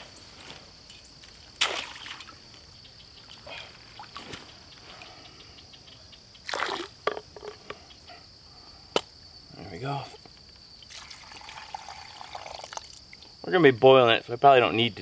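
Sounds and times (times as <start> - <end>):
trap splashing into water: 1.6 - 2.4, 6.4 - 7.2.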